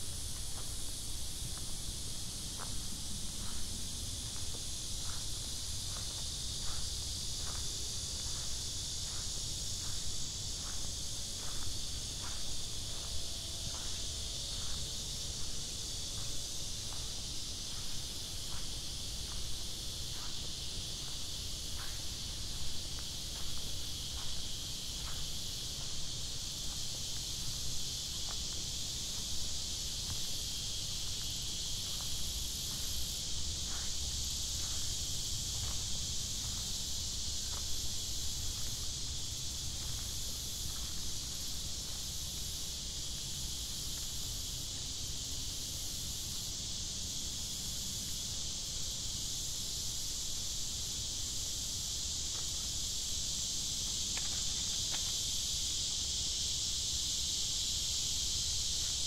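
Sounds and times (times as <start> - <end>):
insects droning: 0.0 - 59.0
footsteps on path: 0.2 - 44.2.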